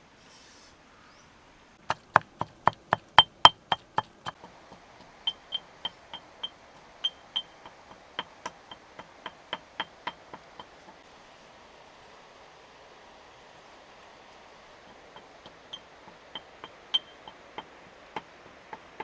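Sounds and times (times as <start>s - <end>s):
pestle pounding in mortar: 1.8s - 6.5s, 7.4s - 11.0s, 14.8s - 19.0s.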